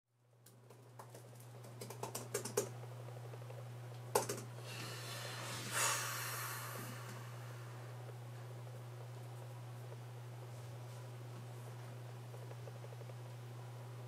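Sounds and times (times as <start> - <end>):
steady low hum: 0.2 - 14.0
laptop keys clicking: 0.5 - 2.7
soft rush of noise: 4.6 - 12.2.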